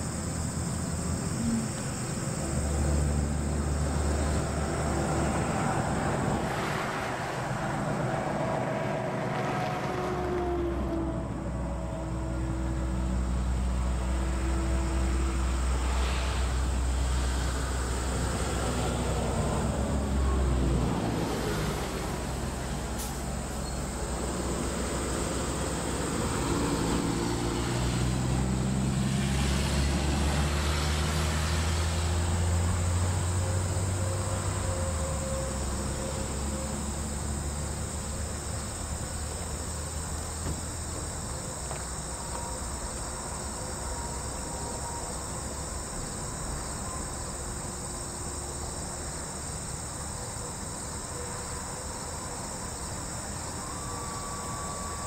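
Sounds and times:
insects chirring: 0.0 - 55.0
motor vehicle passing: 1.2 - 41.0.

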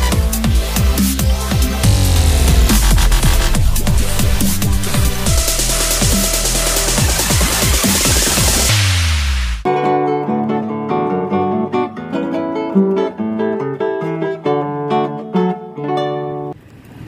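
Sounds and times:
classical guitar melody: 9.7 - 16.6.

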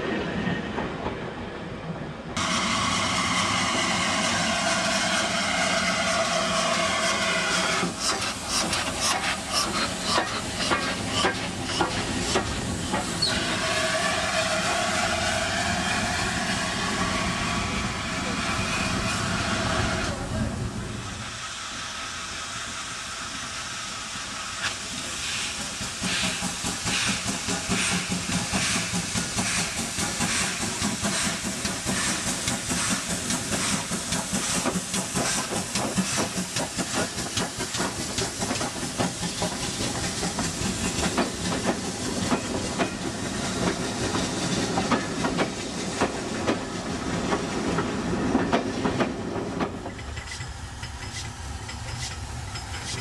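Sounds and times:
steam hissing: 2.4 - 53.0
steam locomotive exhaust beats: 2.4 - 53.0
train wheels clattering on rails: 3.6 - 13.8, 24.6 - 53.0.

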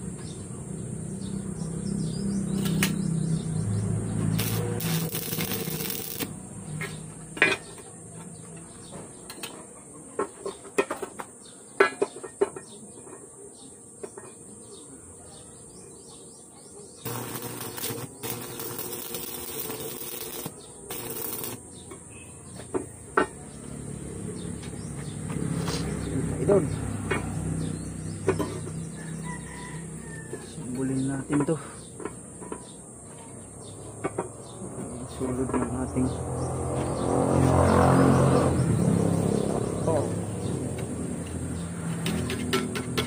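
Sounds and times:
arc welding crackling hiss: 4.3 - 6.4, 17.0 - 21.6.

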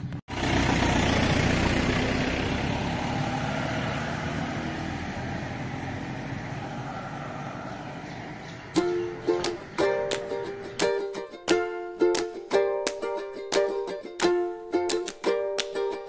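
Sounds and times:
vehicle engine running: 0.0 - 10.8.

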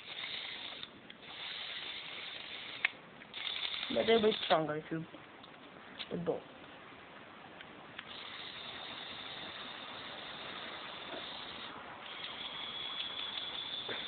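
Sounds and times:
toy motor whining: 0.0 - 4.6, 8.1 - 14.0.

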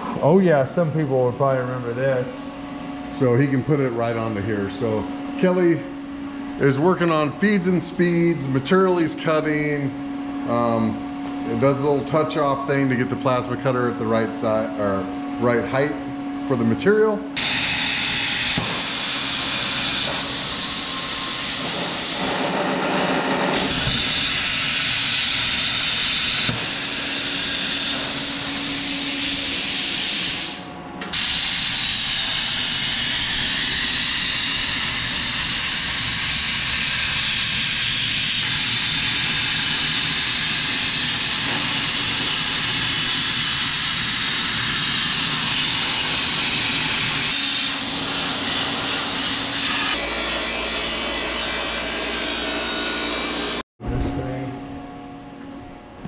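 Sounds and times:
plasma cutter hissing: 17.4 - 53.6.

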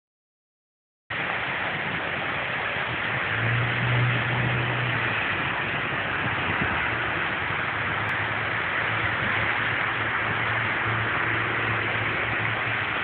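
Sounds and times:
road traffic hiss: 1.1 - 13.0
low vehicle engine hum: 1.2 - 13.0.

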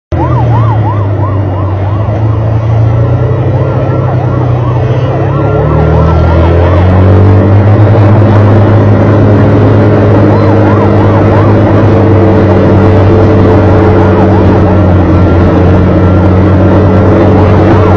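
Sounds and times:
emergency siren yelping: 0.1 - 17.9
low engine drone: 0.1 - 17.9.

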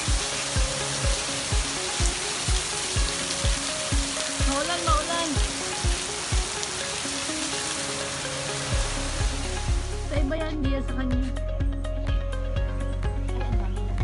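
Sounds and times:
steady rain hiss: 0.0 - 10.4
background music with thumping beat: 8.7 - 14.0.

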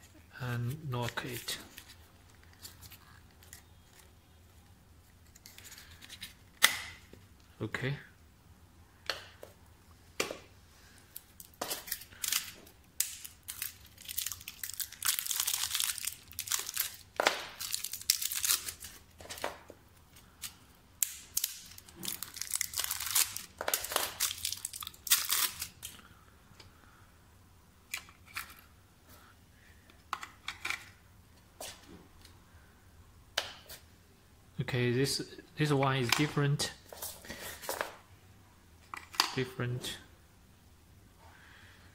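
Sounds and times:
plastic wrapping crinkling: 11.2 - 26.0.

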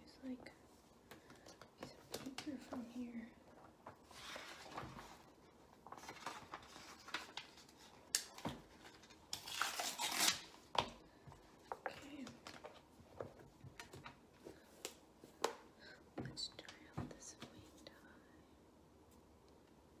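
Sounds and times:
paper rustling and tearing: 5.9 - 8.0, 8.9 - 10.6.

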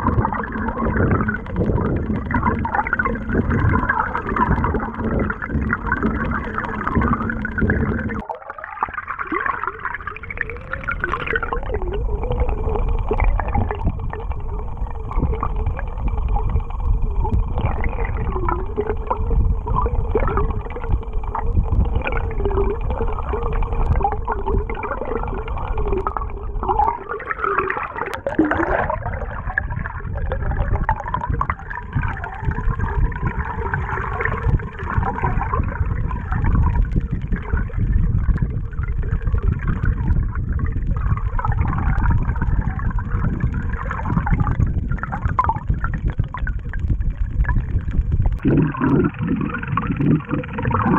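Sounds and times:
underwater rush of water: 0.0 - 50.9
vibrating lure blade whining underwater: 0.0 - 50.9.

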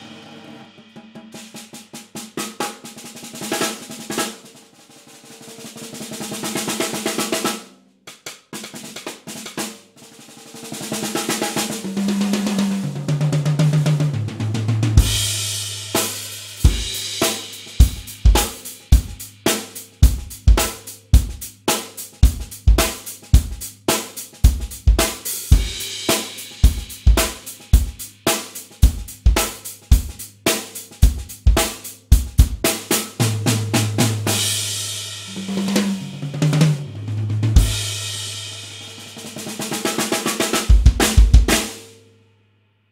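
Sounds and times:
drum groove with cymbals: 0.0 - 42.0
tom fill: 11.2 - 41.8.

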